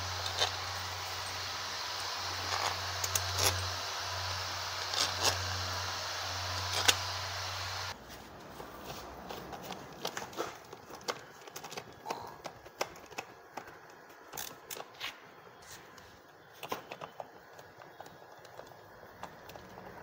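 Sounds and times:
clicks and knocks of hand work: 8.7s - 15.2s.

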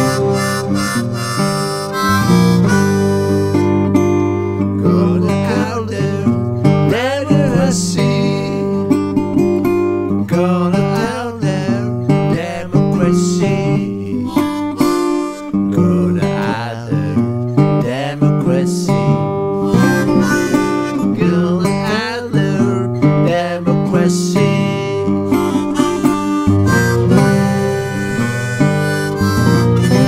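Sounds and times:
harmonica: 0.0s - 4.7s, 14.1s - 15.8s, 19.6s - 21.8s, 24.5s - 30.0s
acoustic guitar: 0.0s - 30.0s.

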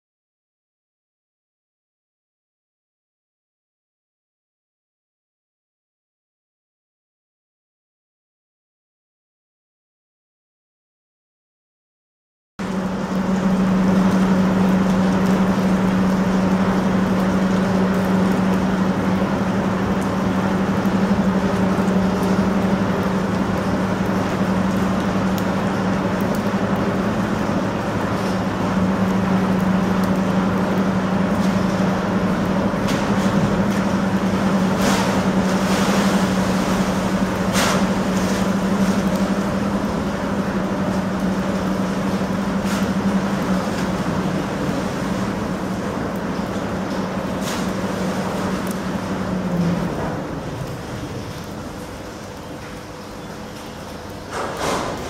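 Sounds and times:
machinery hum: 12.6s - 55.0s
water churning: 12.6s - 55.0s.

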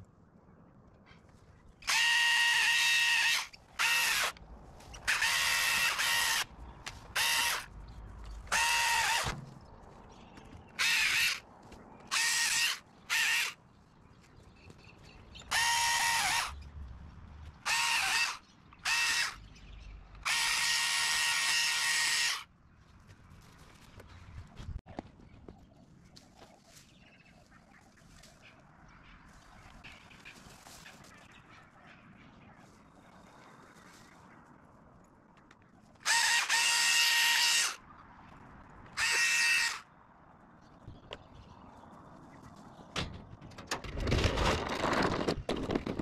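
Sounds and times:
pole saw motor whine: 36.1s - 37.8s, 39.0s - 39.8s.

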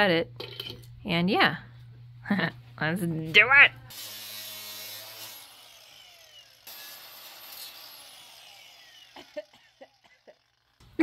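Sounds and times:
angle grinder winding down: 3.9s - 11.0s.

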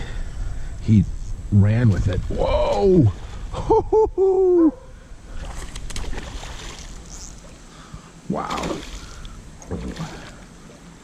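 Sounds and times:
steady hiss: 0.0s - 5.8s, 6.5s - 11.0s
fish splashing at water surface: 8.4s - 10.4s.

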